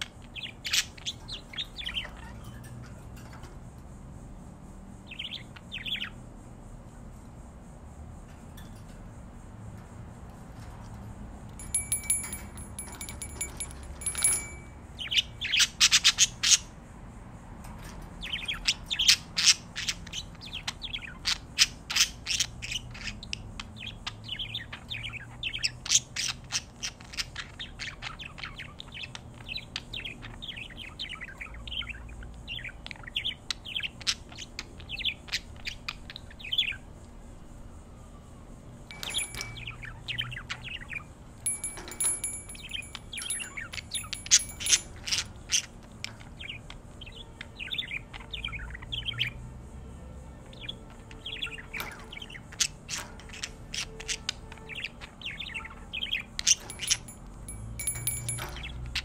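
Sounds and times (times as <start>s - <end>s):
budgerigars chirping and warbling: 0.0s - 2.8s, 5.1s - 6.2s, 18.2s - 36.8s, 39.0s - 41.1s, 41.8s - 49.4s, 50.5s - 57.1s, 57.9s - 59.0s.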